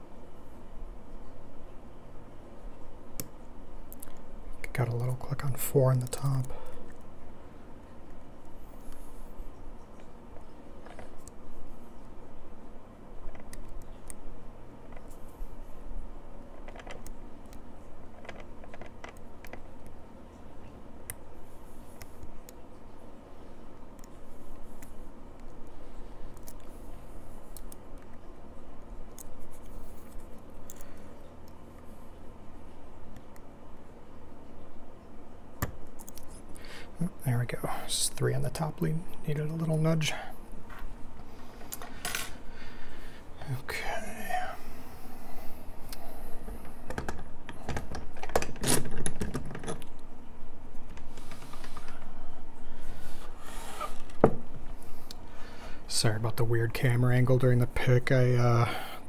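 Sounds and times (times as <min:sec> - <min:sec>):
metal lock clicking and clattering: 0:46.9 - 0:49.9.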